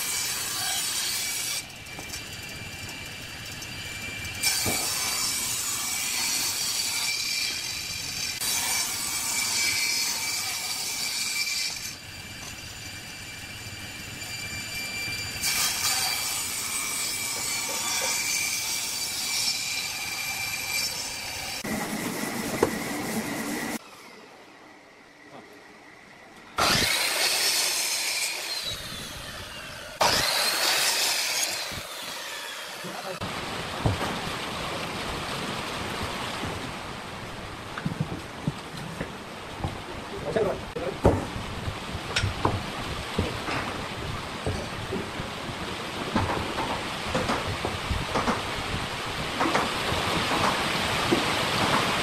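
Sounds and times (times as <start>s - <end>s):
table saw cutting wood: 0.0s - 24.3s, 26.6s - 33.2s.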